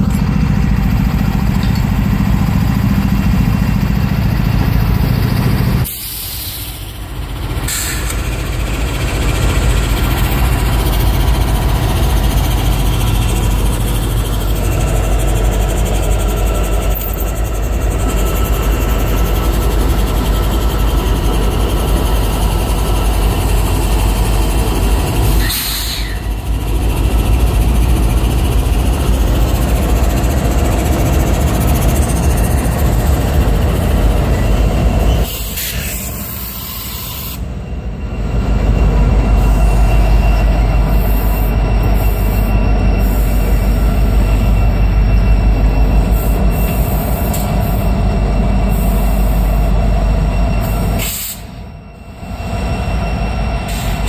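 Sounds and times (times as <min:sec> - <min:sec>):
locomotive engine deep rumble: 0:00.0 - 0:54.0
train wheels on rail: 0:00.0 - 0:54.0.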